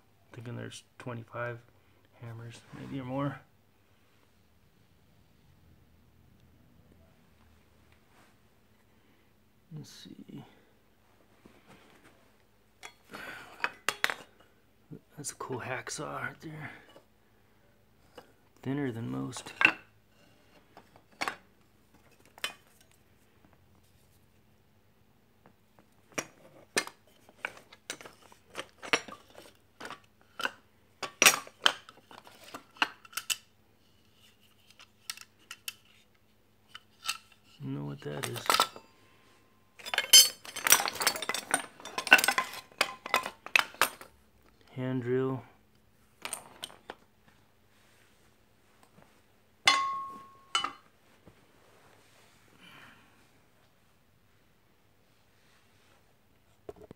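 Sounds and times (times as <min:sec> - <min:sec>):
metal tools clanking: 0:37.0 - 0:39.0, 0:39.8 - 0:44.1, 0:49.7 - 0:50.9
metallic ring: 0:49.7 - 0:50.9.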